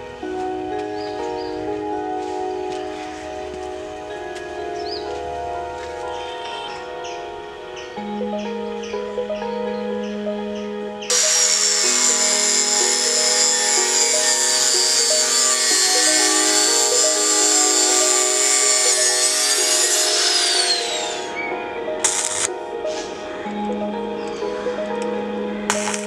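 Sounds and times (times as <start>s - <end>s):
background music: 0.0s - 26.0s
angle grinder cutting steel: 11.1s - 21.4s, 22.0s - 22.5s.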